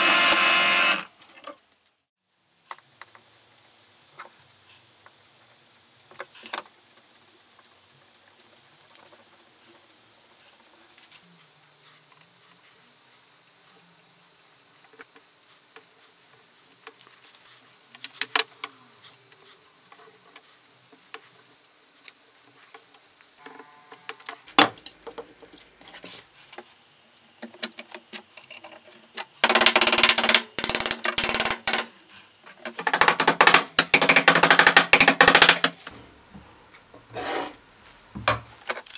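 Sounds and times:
hammer tapping on steel pins: 29.4s - 31.9s, 32.8s - 35.8s.

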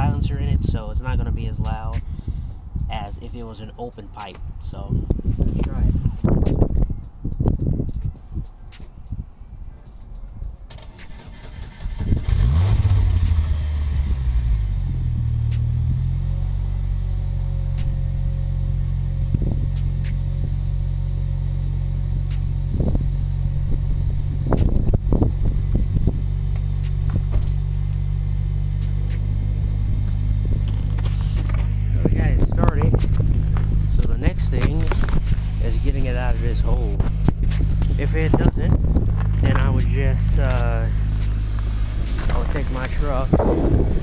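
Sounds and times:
car engine starting and idling: 10.6s - 44.0s.

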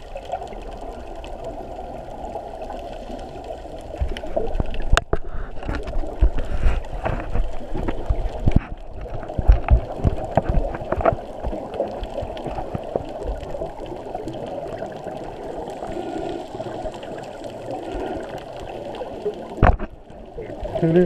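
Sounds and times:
water swishing and bubbling: 0.0s - 21.0s
low thumps and knocks: 4.0s - 11.6s, 19.6s - 20.0s.

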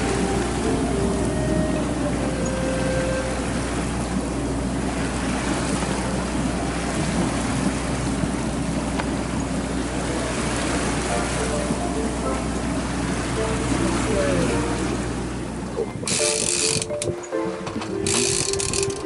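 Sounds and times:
wind noise: 0.0s - 11.1s, 15.8s - 19.0s
boat engine droning: 0.0s - 19.0s
water rushing along hull: 0.0s - 19.0s.

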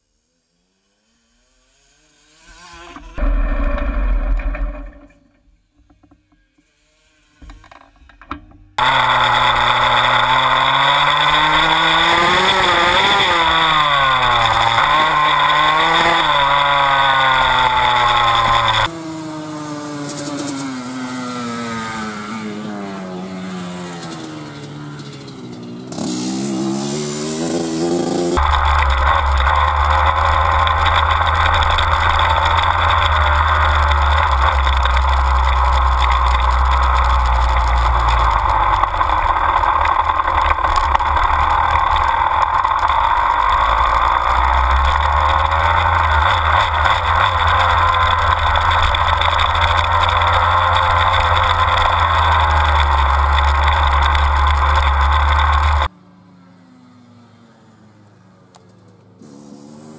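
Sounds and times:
dirt bike engine running: 8.8s - 19.0s, 23.4s - 55.9s.

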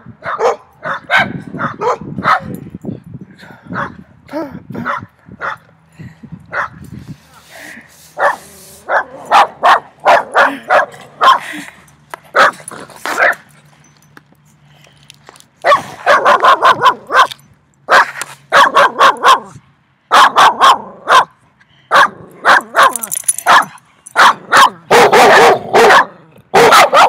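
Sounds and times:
dogs barking loudly: 0.2s - 2.6s, 3.7s - 4.0s, 4.8s - 5.7s, 6.5s - 6.8s, 8.2s - 11.6s, 12.3s - 13.6s, 15.6s - 27.0s.

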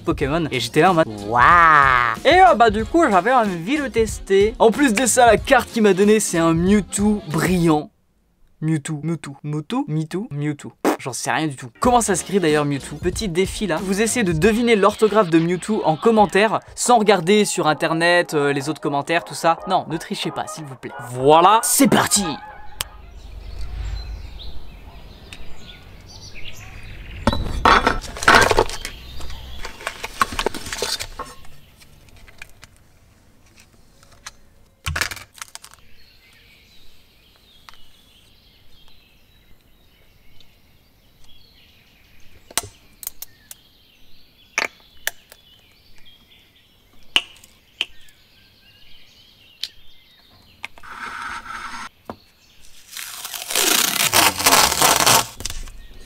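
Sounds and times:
rustling: 52.6s - 56.0s.

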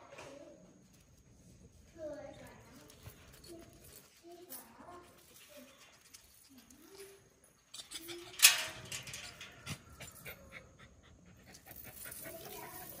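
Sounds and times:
light clicks and rustles: 0.0s - 10.4s.

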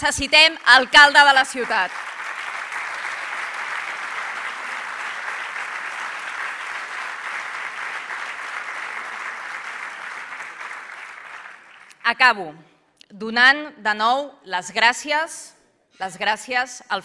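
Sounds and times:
audience applauding: 0.8s - 12.0s.

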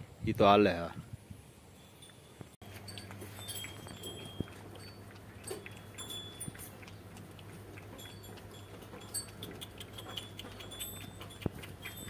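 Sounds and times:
small bells tinkling: 1.7s - 7.1s, 7.8s - 12.0s.

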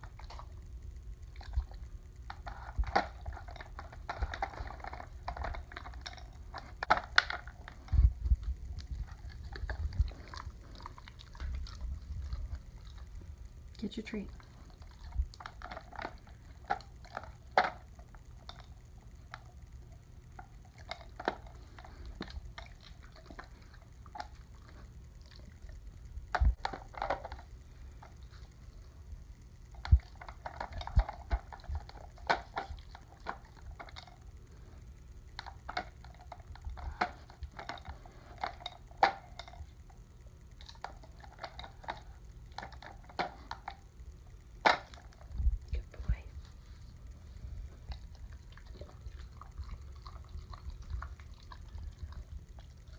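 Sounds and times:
dog licking: 47.7s - 52.9s.

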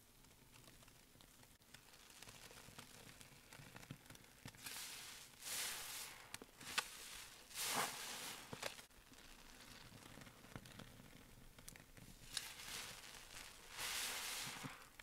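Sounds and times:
foam hissing and crackling: 1.6s - 15.0s
wet sponge squelches: 4.6s - 8.9s, 12.2s - 15.0s.

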